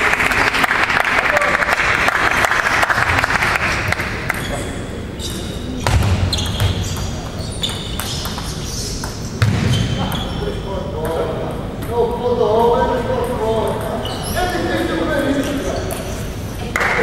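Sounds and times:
applause: 0.0 - 4.4, 16.7 - 17.0.

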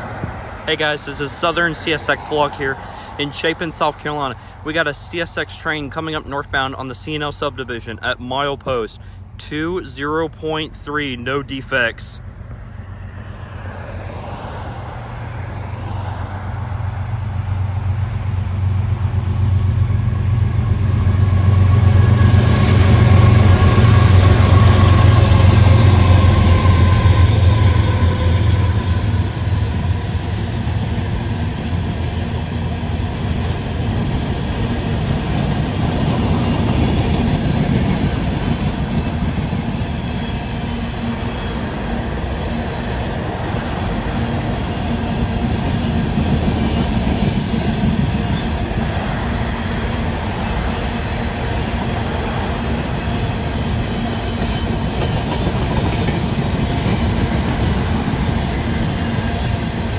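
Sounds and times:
locomotive engine rumble: 0.0 - 59.9
wheels rolling on rail: 12.5 - 59.9.

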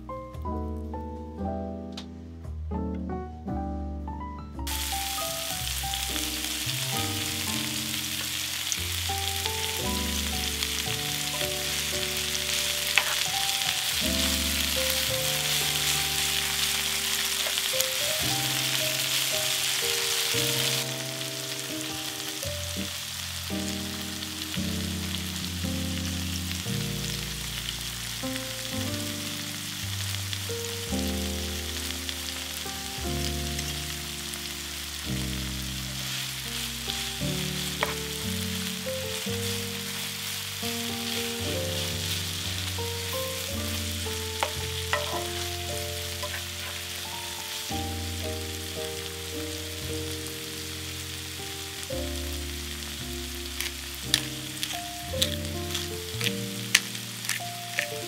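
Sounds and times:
background music: 0.0 - 58.0
vegetables sizzling in oil: 4.7 - 58.0
spatula stirring: 11.3 - 14.1, 44.4 - 47.1, 53.6 - 58.0.

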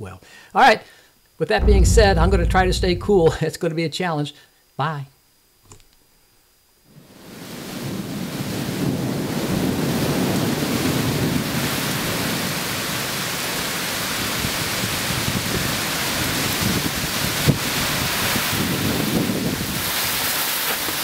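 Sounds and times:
low thunder rumble: 1.6 - 3.4.

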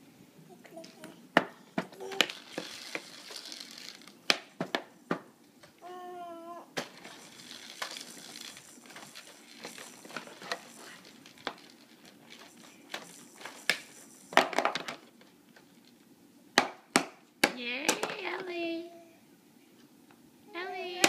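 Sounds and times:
plastic toys clicking and clattering: 1.9 - 4.9, 6.8 - 16.0, 17.5 - 18.6
toy rattling: 2.0 - 4.2, 6.8 - 16.0.

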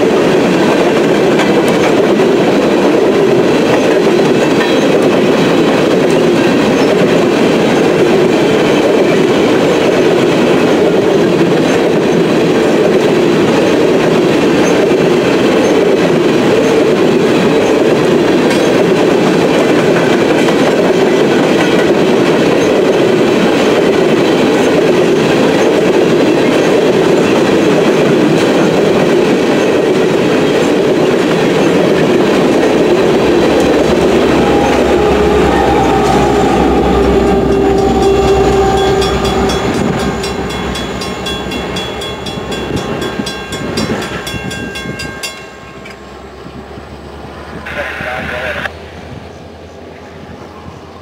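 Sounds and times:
train wheels rattling: 0.0 - 47.0
locomotive engine rumble: 16.2 - 51.0
crossing bell ringing: 30.5 - 46.5.

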